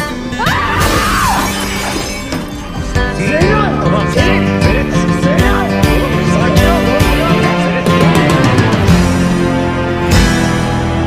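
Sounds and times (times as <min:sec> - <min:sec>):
mirror glass shattering: 0:00.8 - 0:02.8.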